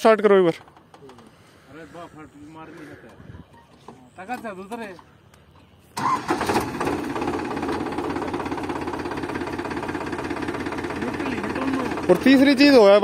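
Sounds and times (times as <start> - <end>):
tractor diesel engine starting and idling: 5.9 - 13.0.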